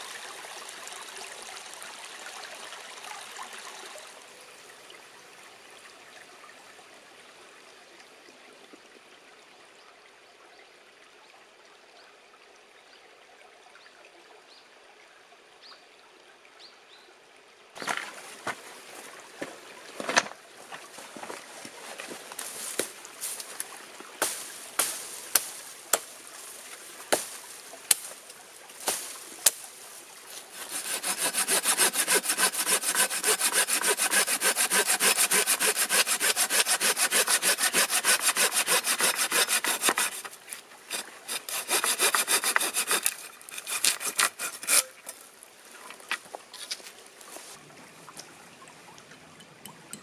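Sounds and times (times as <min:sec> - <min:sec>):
hand saw cutting wood: 0:30.3 - 0:45.2.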